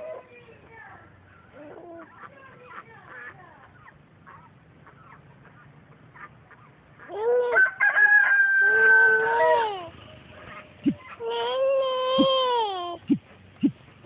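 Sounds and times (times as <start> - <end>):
rooster crowing: 7.4 - 9.8.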